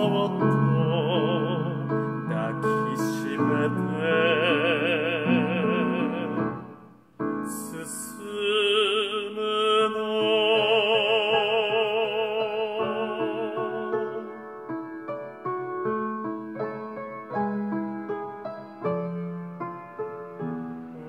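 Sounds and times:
piano accompaniment: 0.0 - 21.0.

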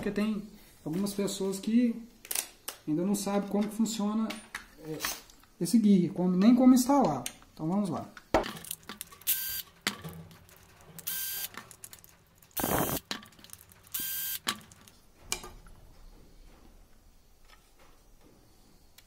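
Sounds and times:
cordless drill motor whine: 11.1 - 11.4, 12.6 - 13.0, 14.0 - 14.4.

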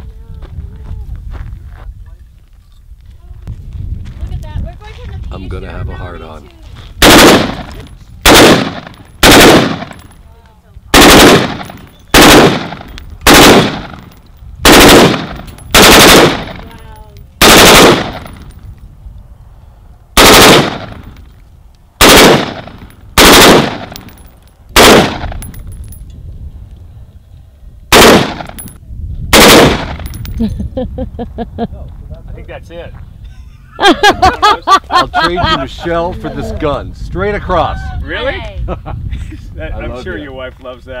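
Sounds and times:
rifle bursts of rapid fire: 7.0 - 10.0, 10.9 - 13.9, 14.6 - 16.6, 17.4 - 18.2, 20.2 - 20.9, 22.0 - 22.6, 23.2 - 23.9, 24.8 - 25.2, 27.9 - 28.5, 29.3 - 29.9.

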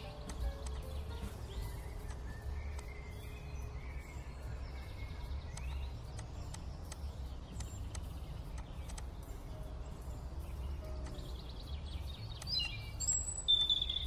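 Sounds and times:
sharp clicks: 0.0 - 1.0, 5.5 - 9.3, 12.3 - 13.3
birds chirping: 0.0 - 14.0.

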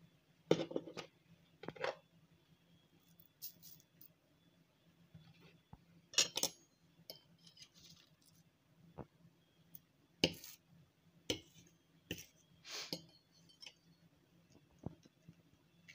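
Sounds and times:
cutlery clinking on a plate: 6.2 - 7.7.

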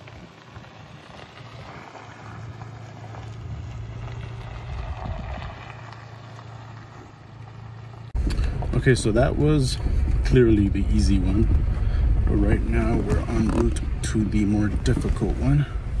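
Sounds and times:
pickup engine low hum: 0.0 - 16.0
tyres on dirt: 0.0 - 16.0.

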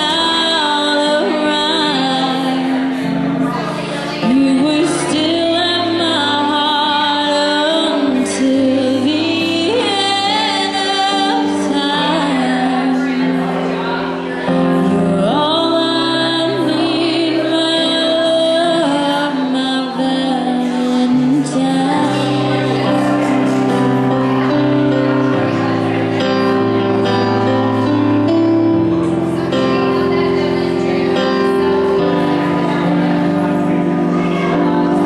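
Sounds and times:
woman singing: 0.0 - 25.1
keyboard chords: 0.0 - 35.0.

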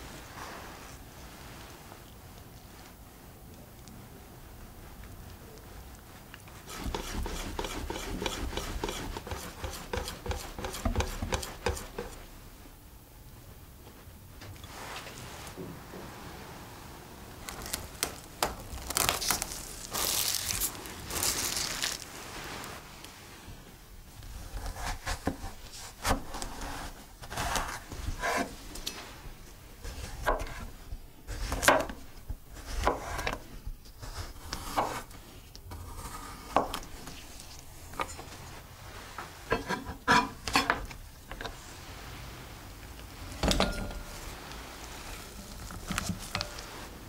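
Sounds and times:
knife slicing vegetable: 6.7 - 12.2, 24.3 - 28.5
crinkly rustling: 17.3 - 24.2, 44.0 - 47.0.

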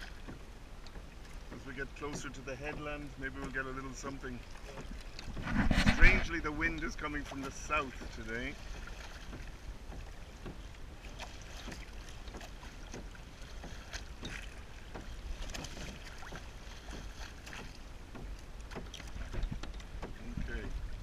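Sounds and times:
water splashing against hulls: 0.0 - 21.0
wind rumble on microphone: 4.1 - 10.2, 18.8 - 21.0.

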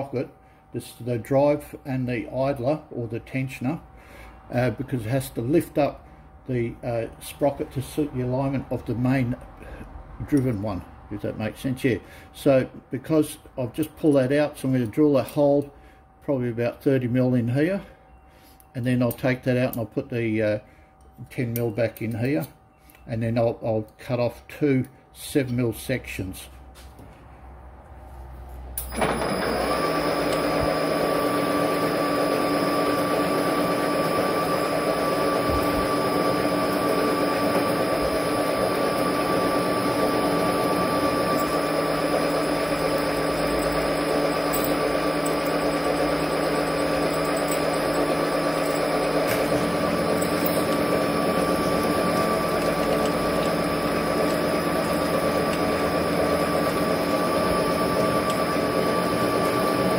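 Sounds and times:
metal lathe running: 28.9 - 59.9.

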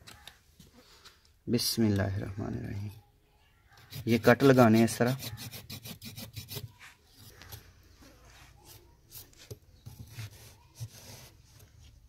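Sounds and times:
knife scraping clay: 3.7 - 11.7.

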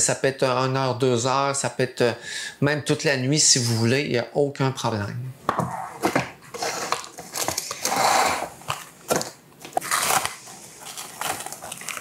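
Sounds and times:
plastic wrap crinkling: 6.5 - 12.0.

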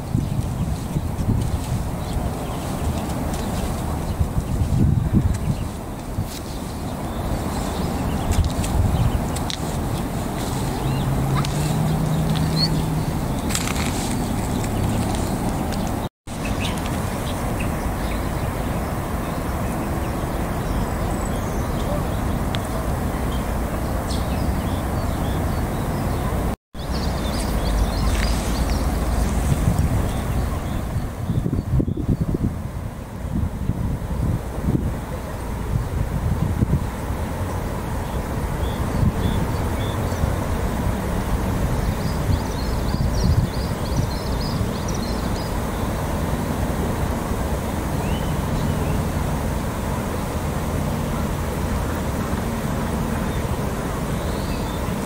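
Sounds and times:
high bird chirps: 10.5 - 18.6.

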